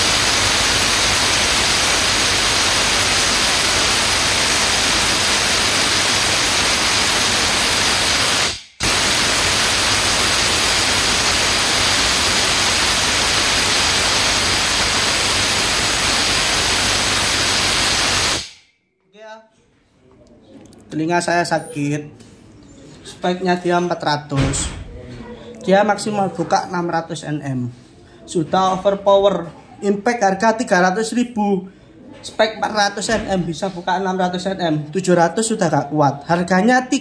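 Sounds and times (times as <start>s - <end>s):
impact wrench hammering: 0.0s - 18.7s.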